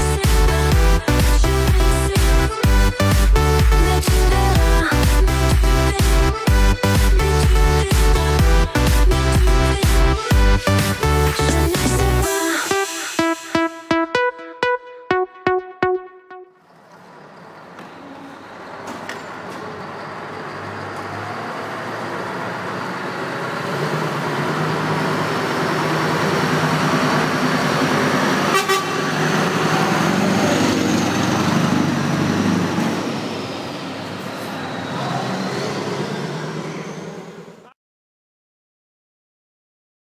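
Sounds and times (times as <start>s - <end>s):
truck engine running: 16.6s - 37.5s.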